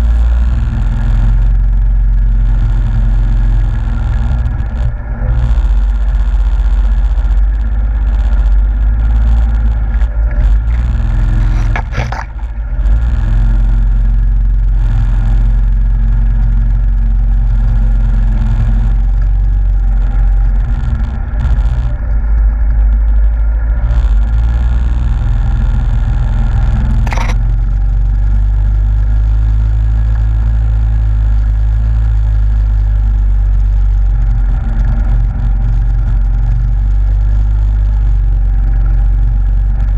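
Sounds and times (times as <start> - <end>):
atv engine running: 0.0 - 39.9.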